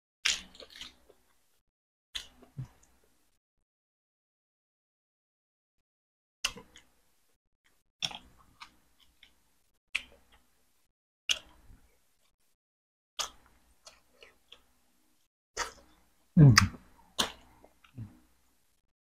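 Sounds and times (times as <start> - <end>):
person chewing with wet smacks: 8.0 - 9.4, 16.6 - 18.2.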